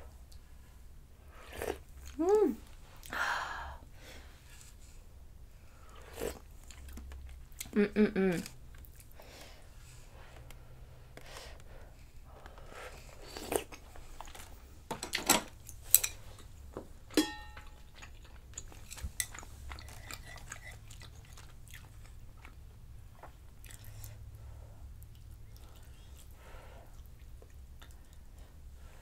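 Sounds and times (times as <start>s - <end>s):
chewing food: 5.8s - 7.8s, 8.4s - 9.2s, 17.6s - 24.4s, 25.0s - 28.5s.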